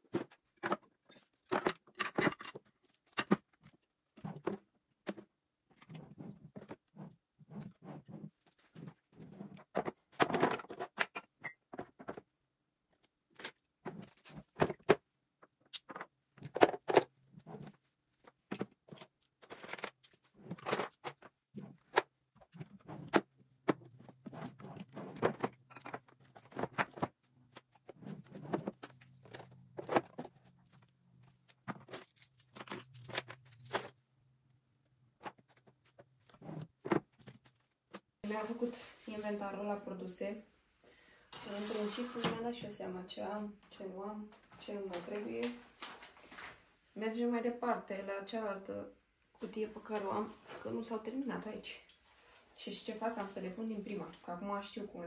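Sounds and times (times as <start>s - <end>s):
plastic containers clicking and knocking: 0.0s - 5.9s, 9.6s - 12.3s, 13.3s - 27.9s.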